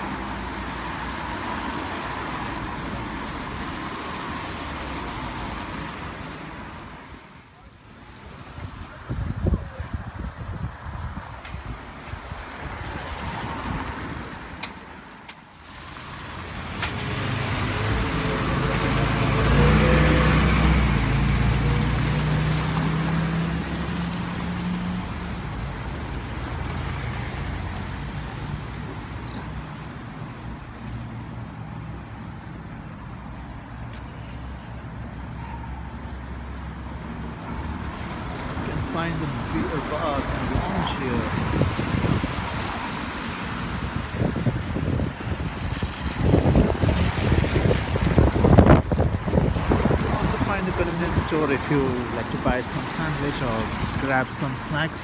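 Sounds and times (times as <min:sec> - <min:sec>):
wind on microphone: 0:08.4 - 0:14.4, 0:40.4 - 0:50.6
vehicle engine rumbling: 0:31.8 - 0:55.0.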